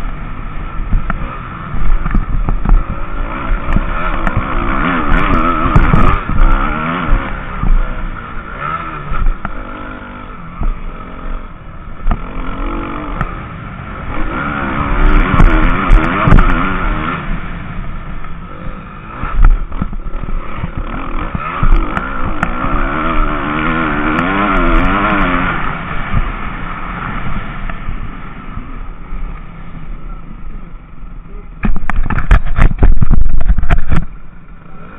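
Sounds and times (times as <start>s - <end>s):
motocross bike engine revving: 0.0s - 30.4s, 31.3s - 34.9s
clatter from bumps: 0.9s - 7.9s, 15.0s - 16.7s, 19.2s - 25.5s, 31.6s - 34.2s.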